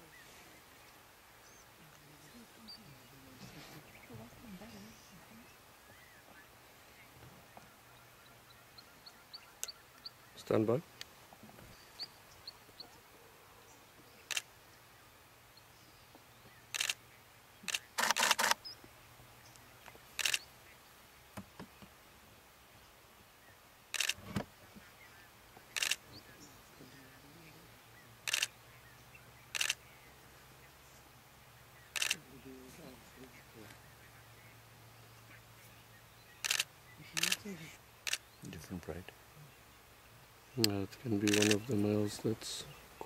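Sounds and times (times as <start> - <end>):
camera shutter clicking: 16.8 - 17.0, 17.7 - 18.6, 20.2 - 20.4, 23.9 - 24.2, 25.8 - 26.0, 28.3 - 28.5, 29.6 - 29.8, 32.0 - 32.2, 36.4 - 37.4, 41.3 - 41.6.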